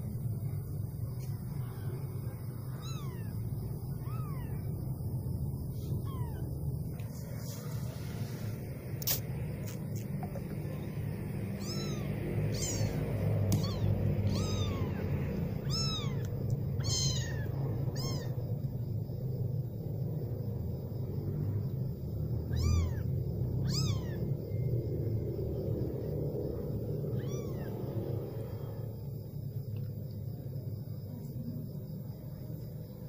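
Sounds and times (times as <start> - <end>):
low steady rumble: 0.0 - 33.0
kitten mewing: 2.7 - 4.8, 5.8 - 6.5, 11.5 - 18.4, 22.4 - 24.2, 27.1 - 27.9.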